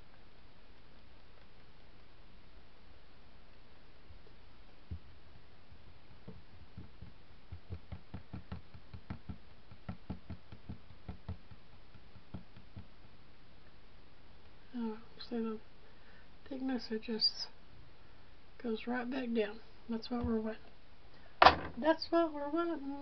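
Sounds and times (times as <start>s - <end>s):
stir stick tapping plastic cup: 6.1s - 13.2s.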